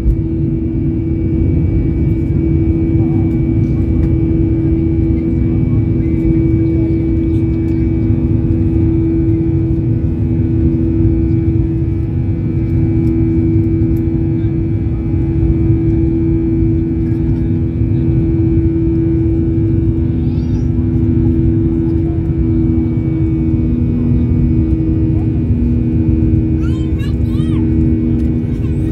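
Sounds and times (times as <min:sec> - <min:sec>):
jet engines droning in cabin: 0:00.0 - 0:28.9.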